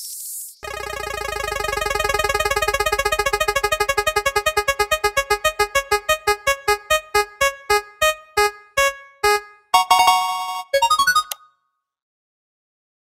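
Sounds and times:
electronic ticking notes: 0.6s - 11.4s
bright held electronic tone: 6.0s - 11.4s.

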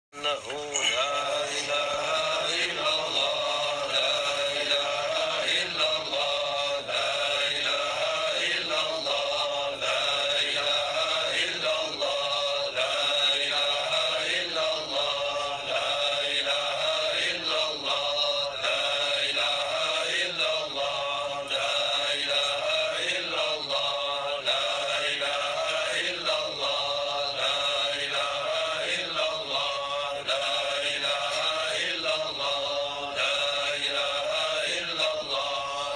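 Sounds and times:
man chanting a devotional song: 0.1s - 35.9s.

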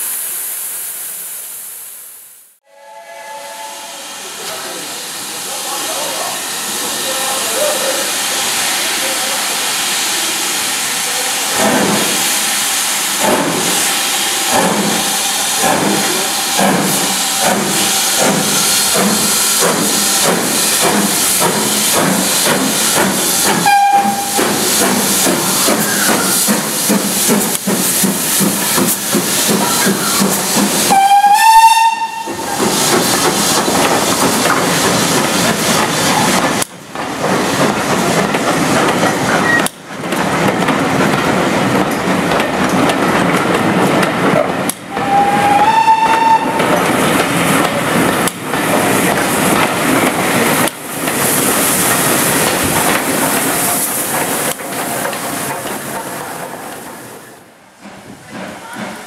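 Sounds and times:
steam hissing: 0.0s - 2.5s, 3.3s - 59.0s
steam whistle blast: 2.6s - 4.1s, 23.6s - 24.5s, 30.9s - 32.4s, 44.9s - 46.6s
steam locomotive exhaust beats: 2.9s - 59.0s.

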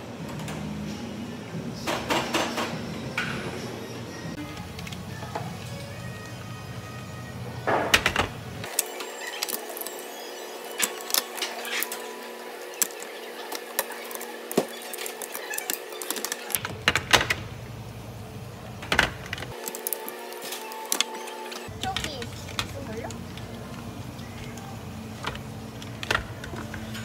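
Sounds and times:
plastic tubs clicking and clattering: 10.8s - 17.5s, 18.8s - 27.0s.

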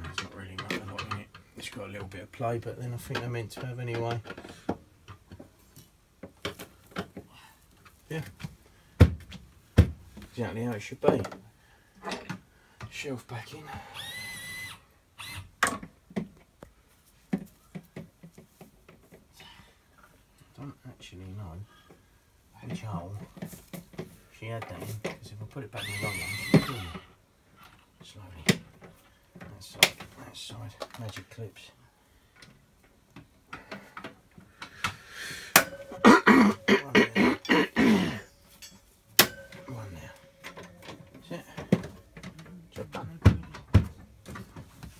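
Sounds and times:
man making wordless vocal sounds: 36.0s - 38.2s.

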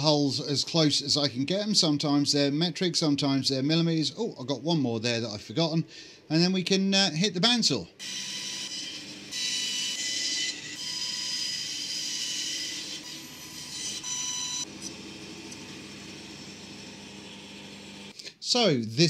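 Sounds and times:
bandsaw cutting plywood: 8.0s - 18.1s
bandsaw humming: 8.0s - 18.1s.

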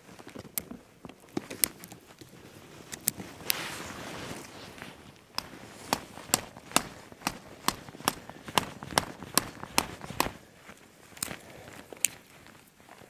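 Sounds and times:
twigs snapping: 0.2s - 3.6s, 5.2s - 12.7s.

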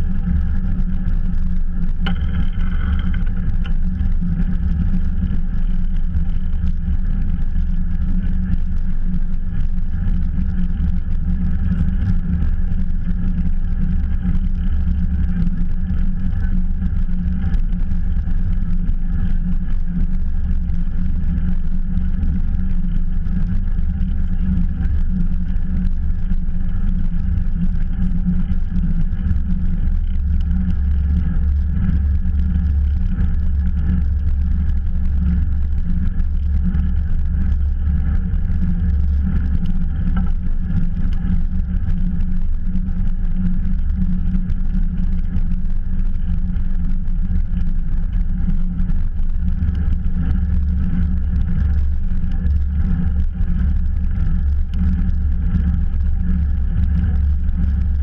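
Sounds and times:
wind rushing over microphone: 0.0s - 8.8s
bicycle tyre rumble: 0.0s - 58.0s.

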